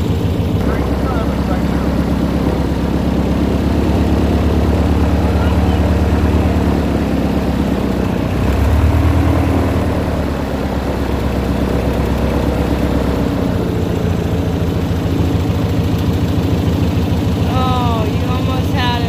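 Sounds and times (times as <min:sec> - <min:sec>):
airboat engine and propeller: 0:00.0 - 0:19.0.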